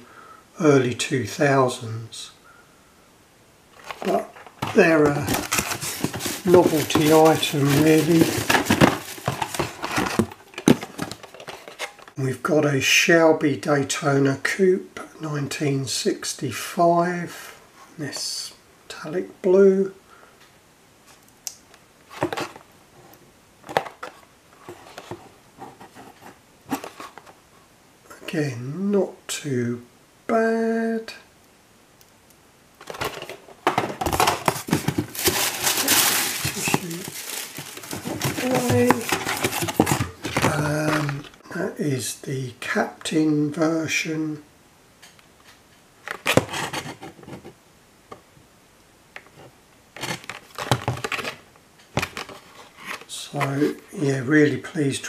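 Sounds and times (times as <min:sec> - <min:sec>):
plastic blister pack crackling: 0:03.8 - 0:12.1, 0:32.8 - 0:41.4
plastic case rubbing and clicking: 0:03.8 - 0:12.1, 0:36.3 - 0:41.3.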